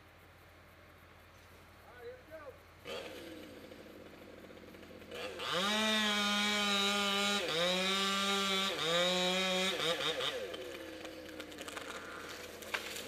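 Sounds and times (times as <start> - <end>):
chainsaw revving: 2.8 - 13.0.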